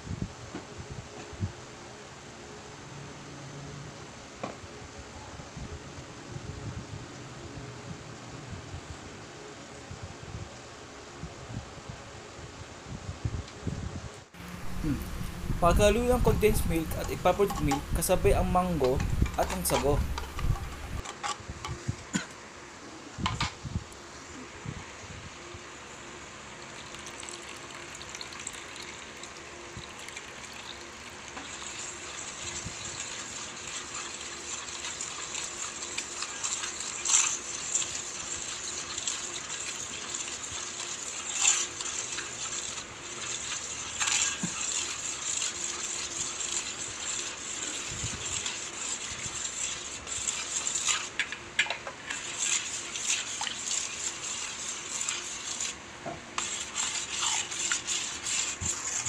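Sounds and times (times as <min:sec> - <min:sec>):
spoon stirring milk: 0:14.6 - 0:21.2, 0:26.8 - 0:55.8, 0:56.4 - 0:59.0
milk pouring into metal bowl: 0:26.6 - 0:51.4.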